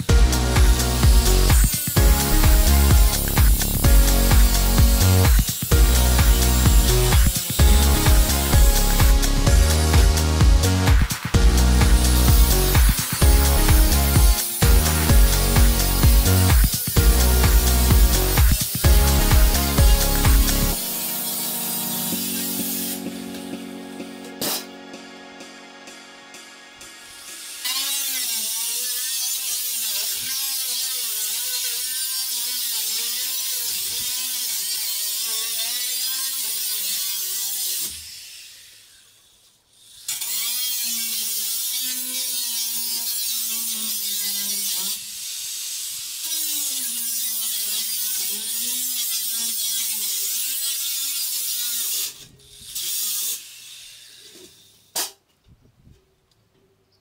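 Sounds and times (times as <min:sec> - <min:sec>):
angle grinder cutting: 0:00.0 - 0:55.2.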